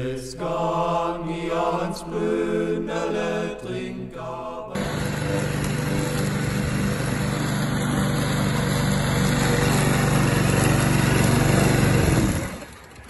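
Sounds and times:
lawn mower engine running: 0:04.8 - 0:13.0.

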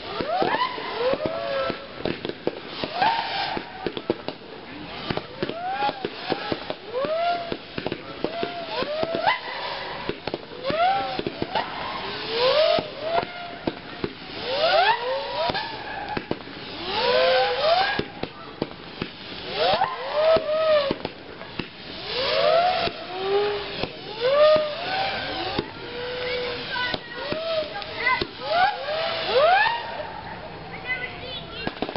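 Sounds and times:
crowd whooping and cheering: 0:28.5 - 0:30.5.

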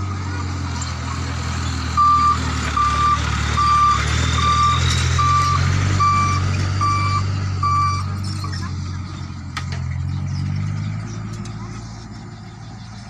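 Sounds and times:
truck engine driving past: 0:00.0 - 0:13.0
electronic alarm beeping: 0:02.0 - 0:08.1.

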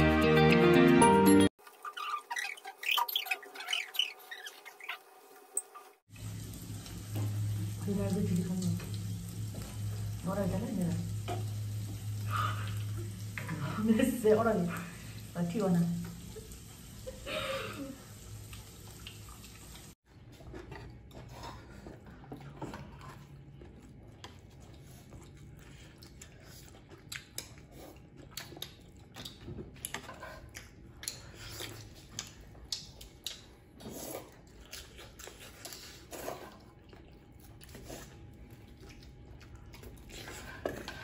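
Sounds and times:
food crackling on a griddle: 0:06.1 - 0:14.0.

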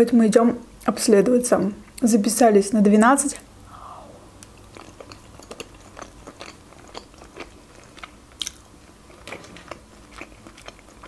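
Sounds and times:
wet chewing mouth clicks: 0:04.4 - 0:11.0.

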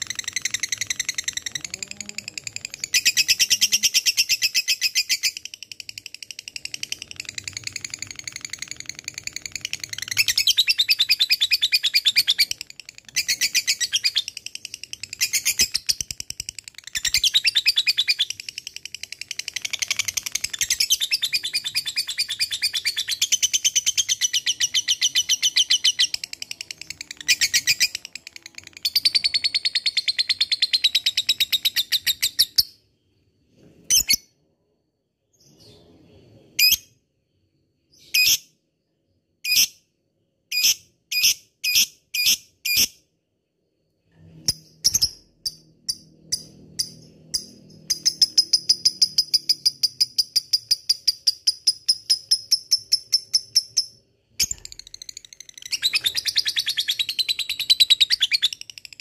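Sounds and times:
lovebird rapid chattering trill: 0:00.0 - 0:32.5.

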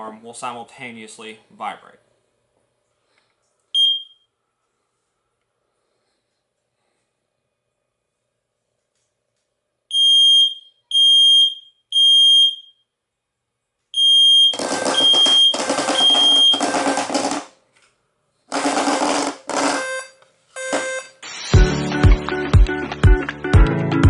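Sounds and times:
smoke alarm high-pitched beeps: 0:03.8 - 0:04.3, 0:09.9 - 0:12.9, 0:13.9 - 0:17.1, 0:19.6 - 0:21.7
low-frequency alarm pulses: 0:14.0 - 0:17.4
bed shaker vibrating: 0:14.6 - 0:17.5.

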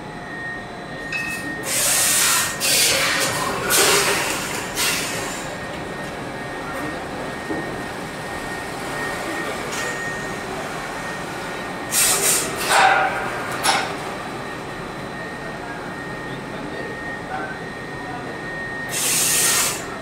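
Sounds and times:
faint high whine: 0:00.0 - 0:01.9
machine running: 0:00.0 - 0:20.0.

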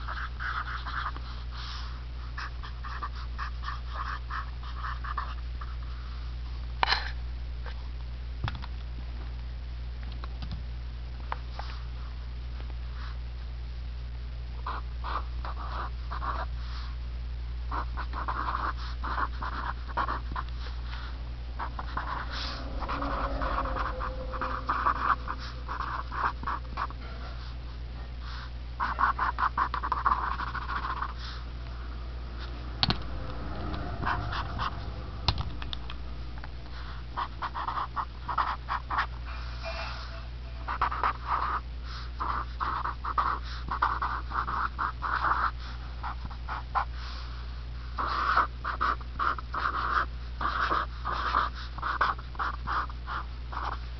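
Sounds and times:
steady low hum: 0:10.7 - 0:53.9
marker squeaking on paper: 0:21.6 - 0:27.5, 0:28.8 - 0:31.4, 0:36.7 - 0:40.0, 0:40.6 - 0:41.6, 0:42.2 - 0:45.5.

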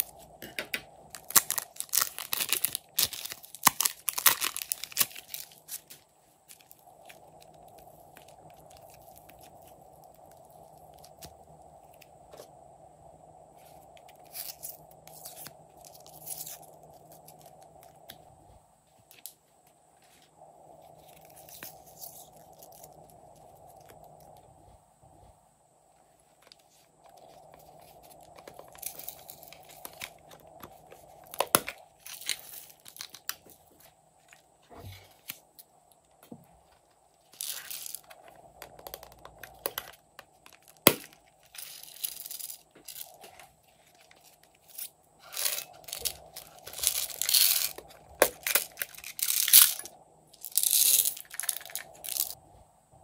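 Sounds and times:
beads shaken out rustling: 0:37.4 - 0:38.1, 0:41.5 - 0:43.2, 0:44.2 - 0:52.4.

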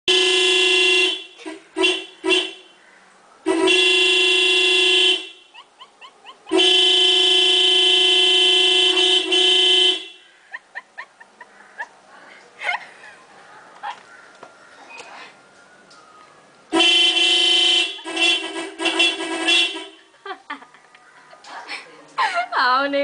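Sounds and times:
car horn blasts: 0:00.1 - 0:02.8, 0:03.5 - 0:05.5, 0:06.5 - 0:10.3, 0:16.7 - 0:20.1.

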